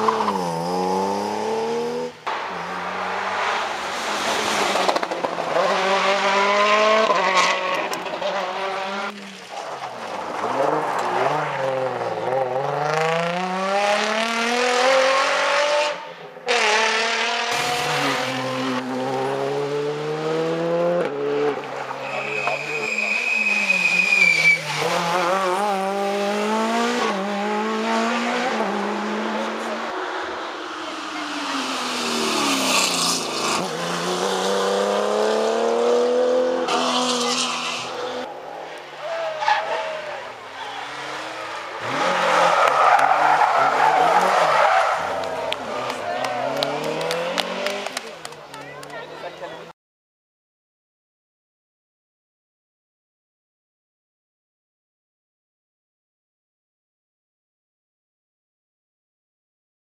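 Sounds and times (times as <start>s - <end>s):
rally car engine revving: 0.0s - 9.4s, 10.0s - 38.3s, 39.0s - 48.3s.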